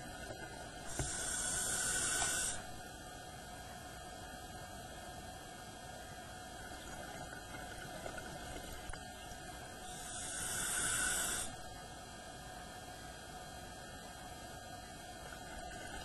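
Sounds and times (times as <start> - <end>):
diver breathing through regulator: 0.8 - 2.8, 9.8 - 11.6.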